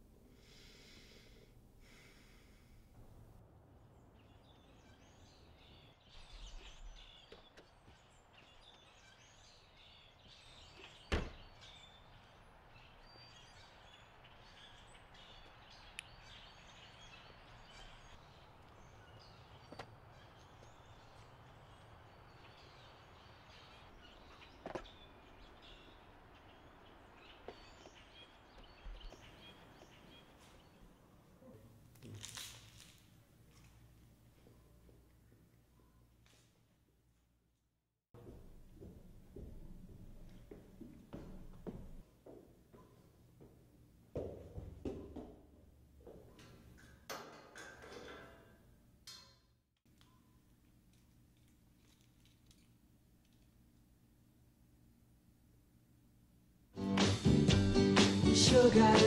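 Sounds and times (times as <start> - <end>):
distant birds chirping: 0.3 - 32.0.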